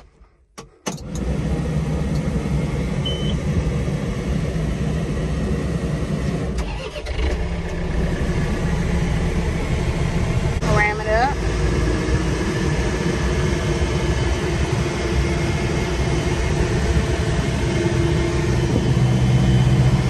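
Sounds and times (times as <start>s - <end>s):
diesel tractor engine starting: 0.0s - 20.0s.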